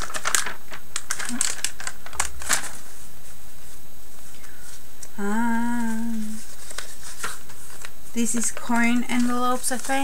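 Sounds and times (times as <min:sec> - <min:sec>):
paper rustling: 0:00.0 - 0:05.1, 0:05.7 - 0:10.0
woman humming: 0:05.0 - 0:06.5.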